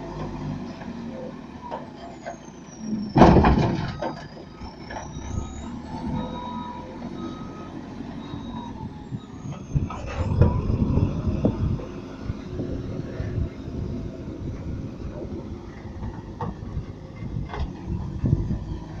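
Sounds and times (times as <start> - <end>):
diesel engine running: 0.0 - 19.0
dirt and rocks crashing into truck bed: 3.2 - 4.3.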